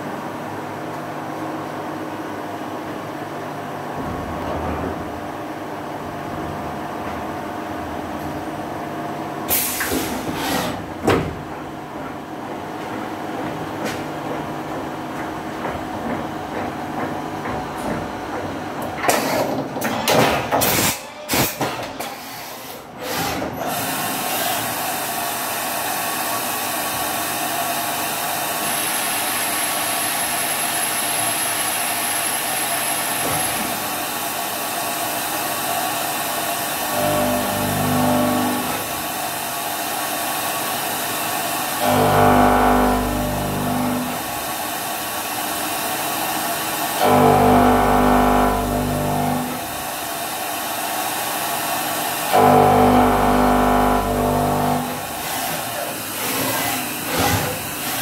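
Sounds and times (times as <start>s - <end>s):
machine knocking and clatter: 3.8s - 8.4s, 9.5s - 22.2s, 54.3s - 58.0s
steady machining noise: 23.8s - 58.0s.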